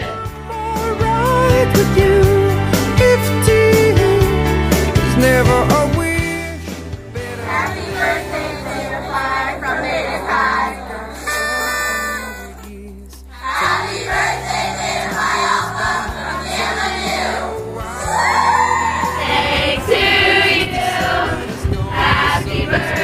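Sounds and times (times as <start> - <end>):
music: 0.0 - 23.0
women singing together: 7.2 - 11.5, 13.4 - 23.0.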